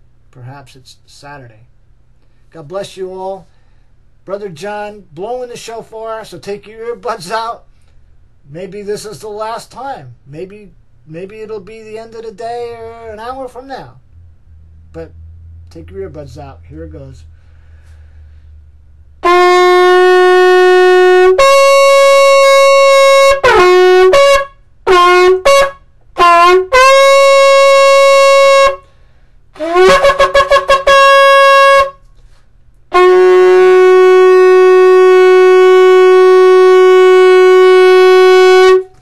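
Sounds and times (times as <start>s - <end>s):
shofar blasts: 12.4s - 17.5s, 19.2s - 28.9s, 29.6s - 32.2s, 32.9s - 39.0s.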